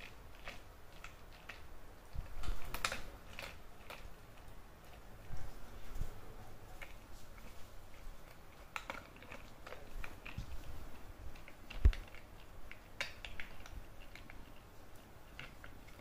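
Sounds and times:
puppy chewing rubber toy: 0.0 - 16.0.

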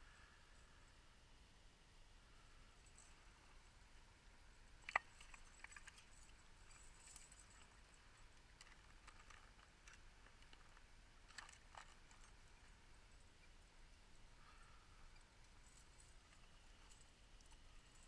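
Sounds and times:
fishing gear clicking: 4.8 - 12.4.

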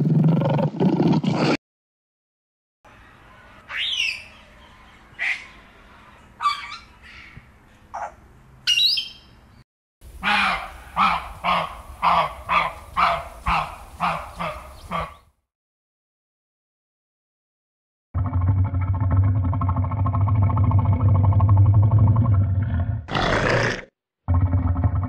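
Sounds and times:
cockatoo squawking: 3.7 - 4.4, 6.4 - 7.4.

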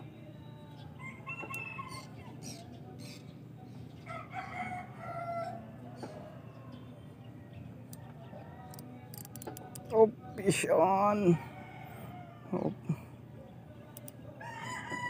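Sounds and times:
rooster crowing: 1.0 - 2.3, 4.1 - 6.4, 11.4 - 12.6, 14.4 - 15.0.

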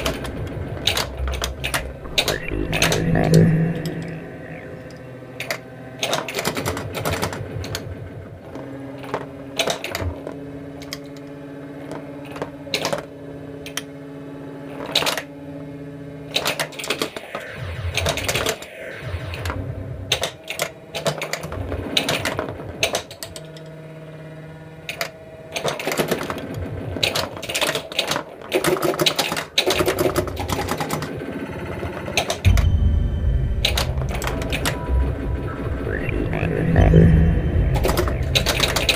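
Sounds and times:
electronic sound-effect tones: 0.0 - 5.6, 32.4 - 38.9
loud low rumble: 0.0 - 5.8, 32.5 - 38.9.

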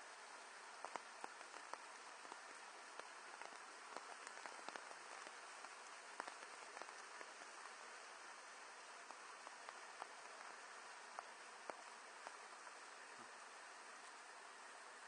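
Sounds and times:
faint steady hiss: 0.0 - 15.0
light clicks and taps: 0.8 - 7.8.

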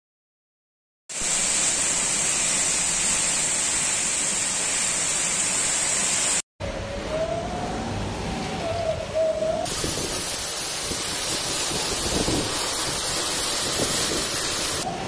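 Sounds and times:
wind noise: 8.6 - 15.0
heavy rain downpour: 9.7 - 14.9.

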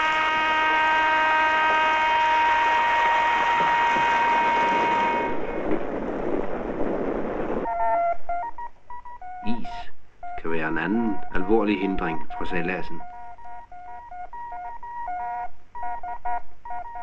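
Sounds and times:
steady horn-like tone: 0.0 - 5.7, 9.2 - 17.0
short beeping tones: 7.7 - 17.0.

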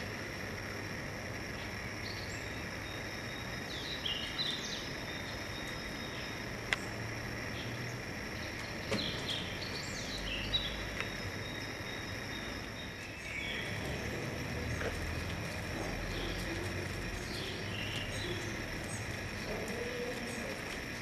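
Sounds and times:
steady high hiss: 0.0 - 21.0
faint clicks: 6.7 - 6.9
bird chirps: 7.6 - 20.6.

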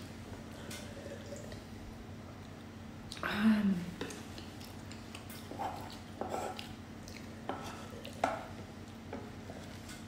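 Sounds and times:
fork scraping on cutting board: 5.4 - 6.6.

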